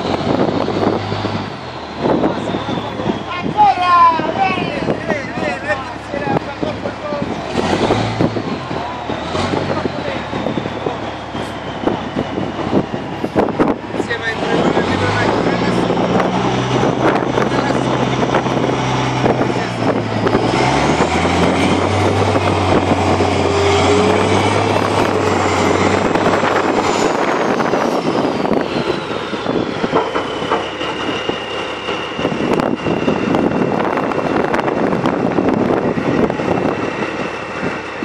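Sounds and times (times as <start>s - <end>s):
dumper truck engine revving: 0.0s - 38.0s
high whine: 0.0s - 38.0s.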